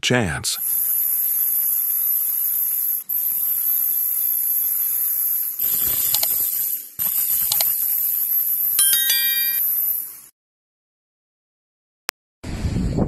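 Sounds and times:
static hiss: 0:00.5 - 0:10.3
high whine: 0:00.6 - 0:10.0
metallic clinks: 0:08.8 - 0:09.7.

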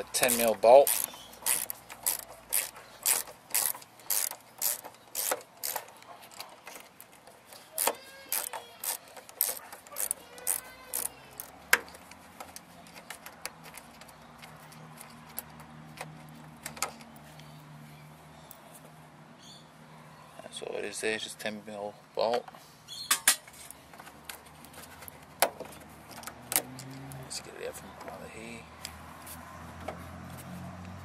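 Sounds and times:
ratchet wrench clicking: 0:00.2 - 0:06.0, 0:07.8 - 0:12.1.

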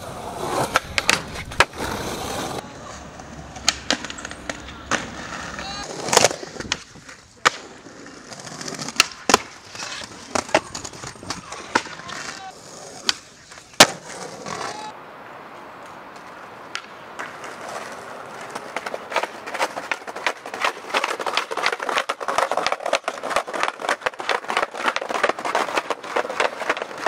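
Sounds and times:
skateboard wheels on brick: 0:00.0 - 0:15.0, 0:15.8 - 0:27.0
sharp clack: 0:03.6 - 0:05.0.

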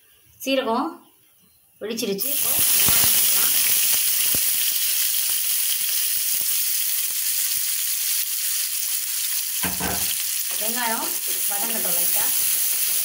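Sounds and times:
onions sizzling in hot oil: 0:02.2 - 0:13.0.

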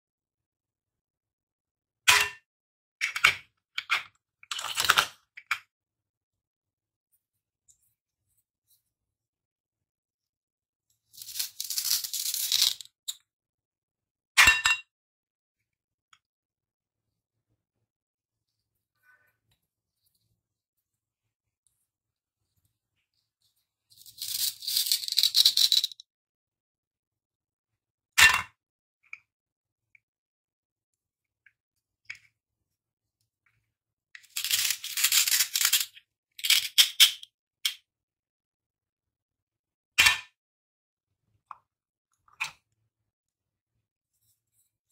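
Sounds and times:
plastic pieces clinking in bowl: 0:04.5 - 0:05.1, 0:11.1 - 0:13.2, 0:24.0 - 0:26.0, 0:34.2 - 0:37.2.

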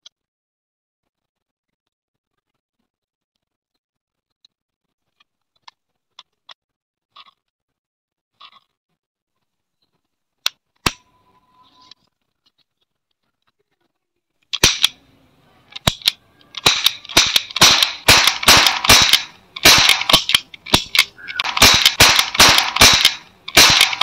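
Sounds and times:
cap gun cracks: 0:14.6 - 0:15.0, 0:15.8 - 0:24.0.

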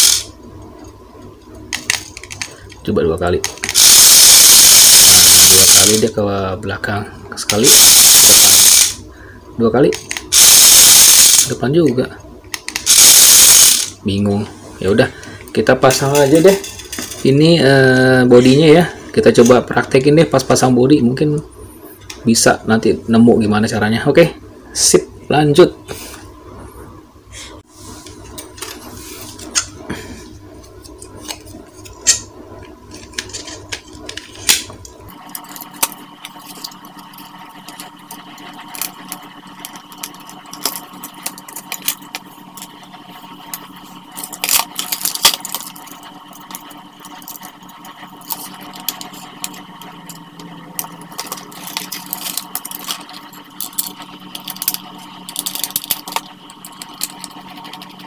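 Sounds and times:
plastic toy parts clicking and rattling: 0:00.0 - 0:00.3, 0:01.7 - 0:02.8, 0:03.4 - 0:06.1, 0:07.5 - 0:09.0, 0:09.9 - 0:11.5, 0:12.6 - 0:14.0, 0:32.9 - 0:42.7, 0:43.5 - 0:58.0
steady hum: 0:00.0 - 0:58.0.

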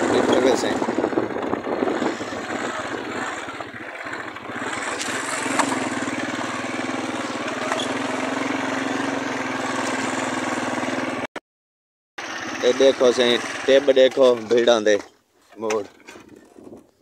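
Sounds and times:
motorcycle engine running: 0:00.0 - 0:11.3, 0:12.2 - 0:15.0.

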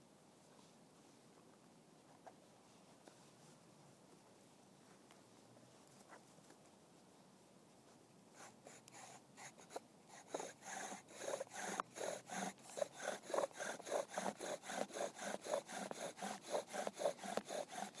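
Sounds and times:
wooden spindle grinding: 0:09.0 - 0:18.0.

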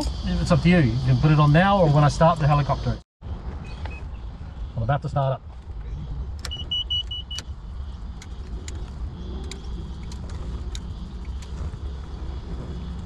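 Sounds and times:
low steady rumble: 0:00.0 - 0:13.0
cockpit switches clicking: 0:06.4 - 0:07.5, 0:08.2 - 0:08.8
quick electronic beeps: 0:06.5 - 0:07.5.

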